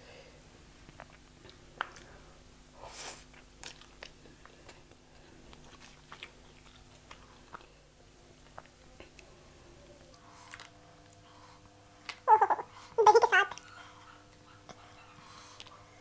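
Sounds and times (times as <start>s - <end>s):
wet chewing: 3.3s - 7.8s.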